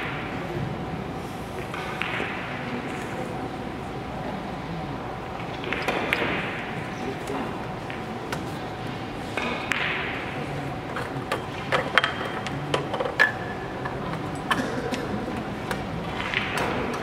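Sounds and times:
large hall background noise: 0:00.0 - 0:17.0.

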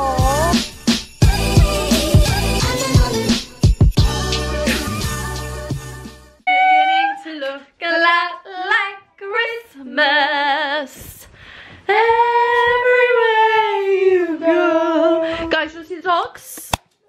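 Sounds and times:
women singing with vibrato: 0:06.5 - 0:15.7.

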